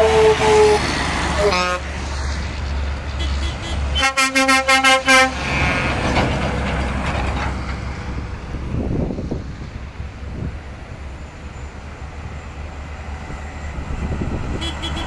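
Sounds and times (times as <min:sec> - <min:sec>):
truck diesel engines rumbling: 0:00.0 - 0:15.0
truck horn short toots: 0:03.2 - 0:05.9, 0:14.6 - 0:15.0.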